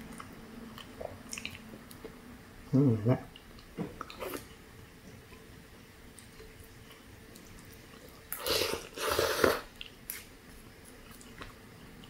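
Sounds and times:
loud noodle slurps: 8.4 - 9.7.

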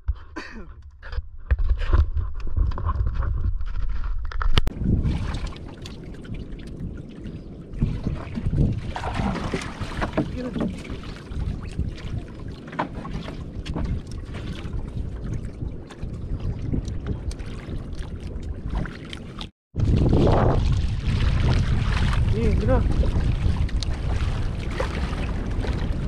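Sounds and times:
wind on microphone: 1.0 - 26.0
water lapping against canoe: 4.7 - 26.0
knocks on wooden hull: 8.4 - 11.1, 12.7 - 14.0.

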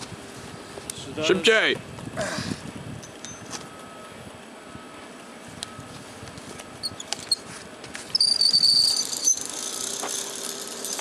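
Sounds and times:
pulley high squeaks: 6.7 - 11.0
metal pulley clinking: 8.2 - 11.0.

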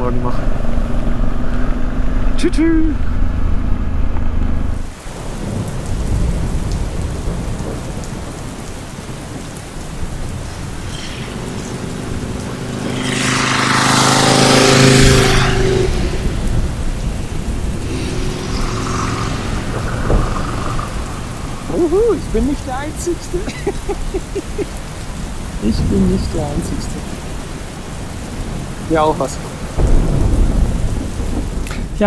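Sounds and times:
rain pattering: 4.0 - 32.0
tyres hissing through water: 9.2 - 27.4
motorcycle engine passing: 10.4 - 22.3.

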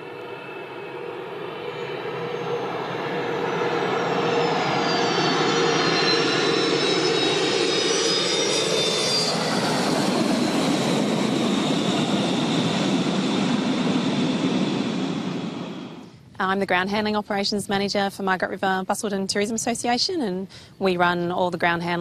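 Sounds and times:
jet engines roaring with turbine whine: 0.0 - 16.4.

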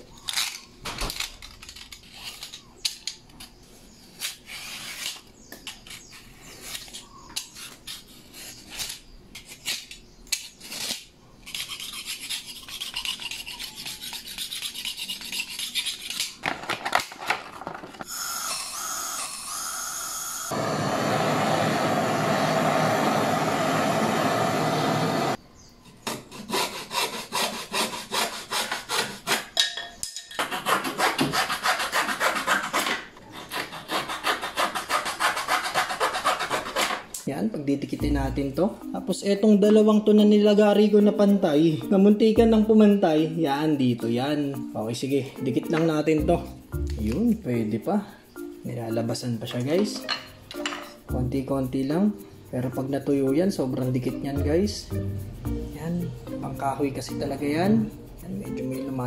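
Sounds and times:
knife blade scraping foam board: 4.2 - 16.4, 26.2 - 29.6, 30.4 - 37.1
hand wire saw cutting wood: 8.7 - 16.4, 26.1 - 29.6, 30.2 - 37.2.

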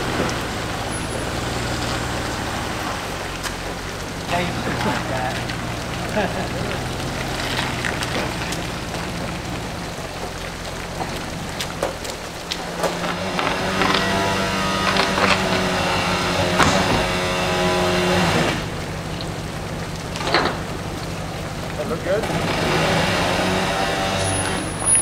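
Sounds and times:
vehicle engine idling: 0.0 - 25.0
electric winch whine: 12.6 - 19.0, 22.2 - 25.0.

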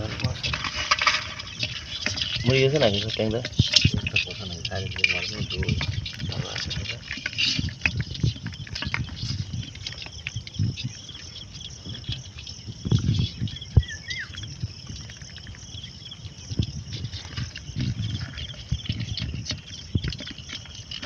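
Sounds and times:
whistled call: 13.7 - 14.4.

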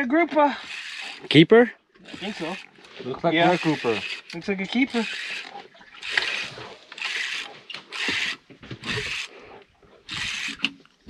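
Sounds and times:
spinning reel rasping: 0.5 - 1.4, 2.0 - 9.3, 10.1 - 10.7.

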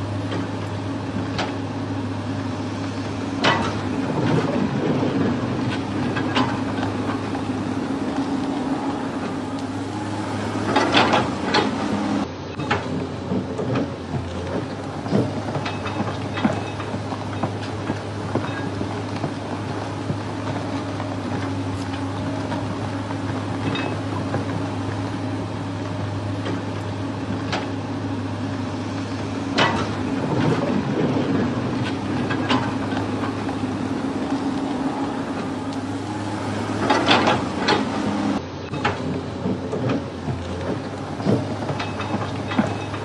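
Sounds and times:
low mechanical hum: 0.0 - 43.0
sharp knocks and clatters: 3.4 - 7.5, 12.6 - 24.6, 29.6 - 33.6, 38.7 - 43.0.

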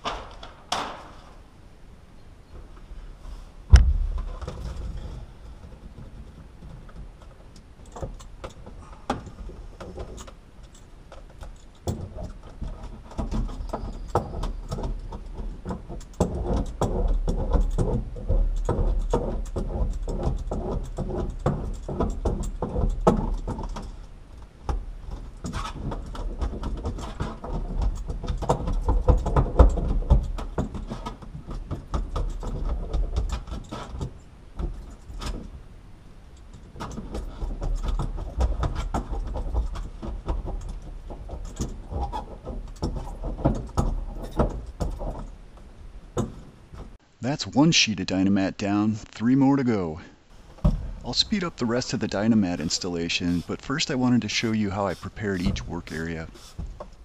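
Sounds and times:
low thuds: 3.6 - 7.2, 50.3 - 57.0.

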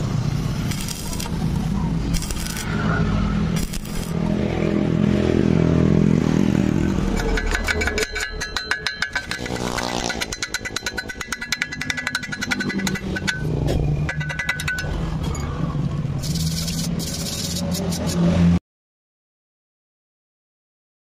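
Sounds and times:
welding arc crackling: 0.0 - 2.9, 3.5 - 4.5, 16.2 - 18.1
sharp metal strokes: 0.0 - 4.6, 6.6 - 18.6.

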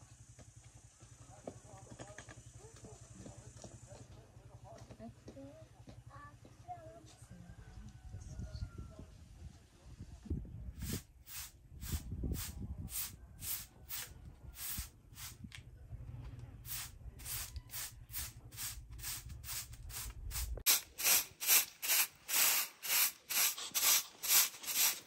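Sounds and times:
straw broom sweeping concrete: 10.8 - 15.4, 16.7 - 25.0
low rumble: 14.2 - 20.7.

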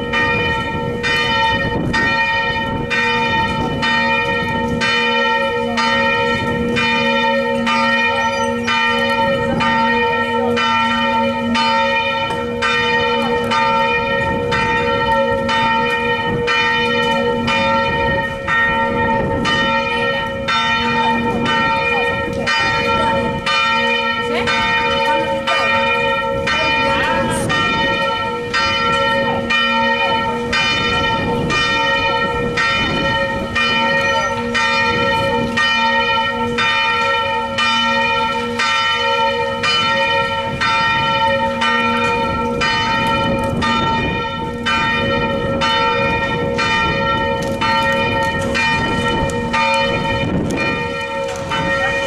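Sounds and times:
wind buffeting microphone: 0.0 - 37.3, 39.0 - 52.0
church bell ringing: 0.0 - 52.0.

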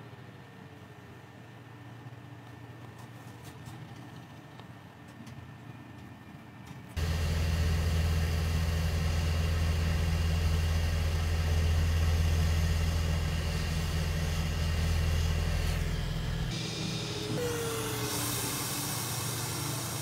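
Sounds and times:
hot air station blowing: 7.0 - 20.0.

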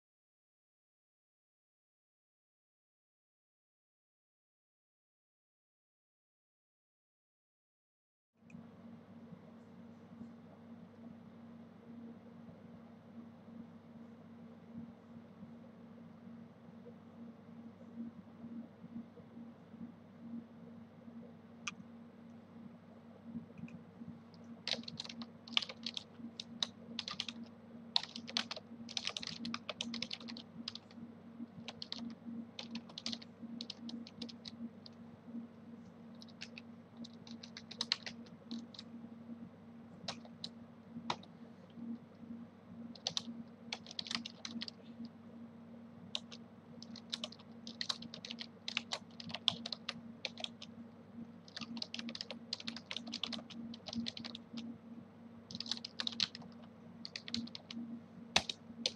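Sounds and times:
low steady hum: 8.4 - 58.9
keyboard typing: 24.7 - 31.0, 31.6 - 35.0, 36.2 - 38.9, 40.1 - 41.3, 42.9 - 44.8, 46.1 - 50.7, 51.4 - 54.7, 55.5 - 57.8, 58.4 - 58.9.

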